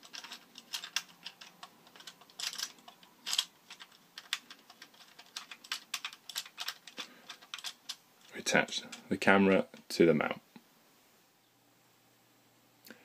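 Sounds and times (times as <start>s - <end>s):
plastic parts clicking: 0.0s - 9.0s
plastic parts scraping: 0.0s - 9.9s.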